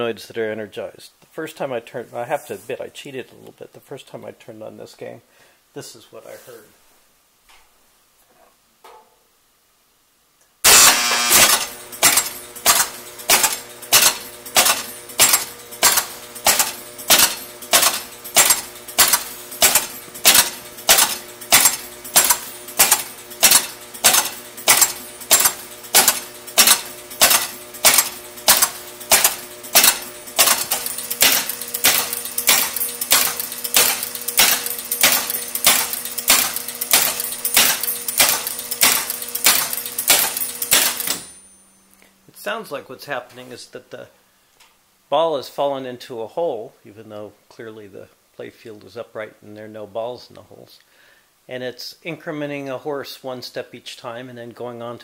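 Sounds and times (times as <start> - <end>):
steady electrical hum: 0.0 - 55.0
pinball relays clacking: 10.7 - 41.8.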